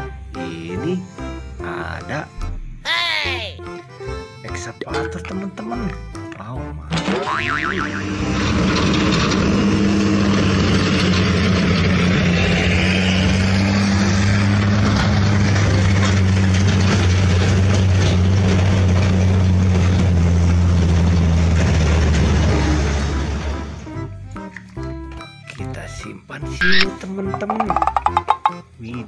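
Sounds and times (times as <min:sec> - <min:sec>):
metal clanks: 0:04.9 - 0:05.5, 0:27.3 - 0:28.6
excavator diesel engine running: 0:06.9 - 0:25.5.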